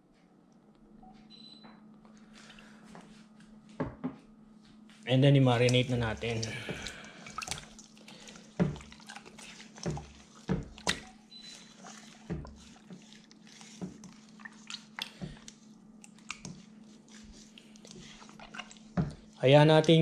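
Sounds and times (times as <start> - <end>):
hands squelching wet marinade: 5.3 - 20.0.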